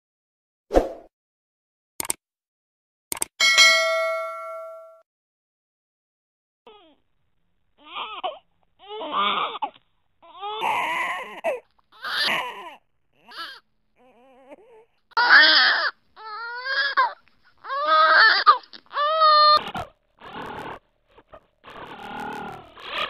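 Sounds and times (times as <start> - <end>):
baby crying: 7.8 - 19.8.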